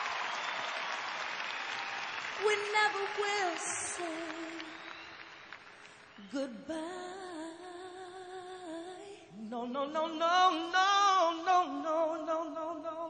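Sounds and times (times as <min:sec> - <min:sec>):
soul ballad duet singing: 0:02.4 - 0:04.9, 0:06.2 - 0:13.0.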